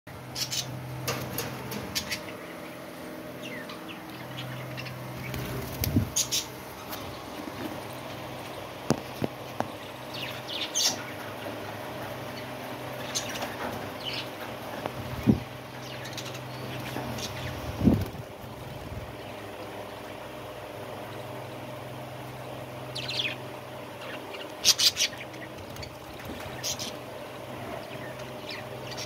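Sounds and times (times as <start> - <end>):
steady low hum: 0.1 - 29.0
wing flutters: 4.9 - 8.0
budgerigars chirping: 6.2 - 6.5.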